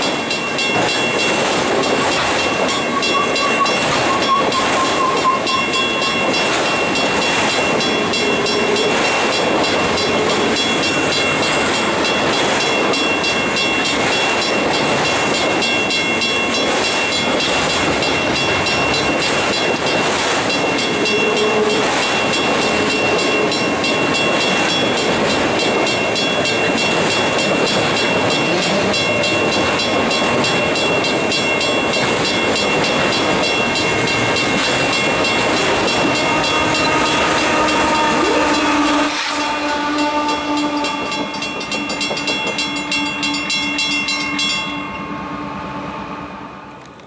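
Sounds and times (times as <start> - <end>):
locomotive engine: 0.0 - 47.0
train wheels rumbling on rail: 0.0 - 47.0
high wheel squeal: 1.8 - 6.5.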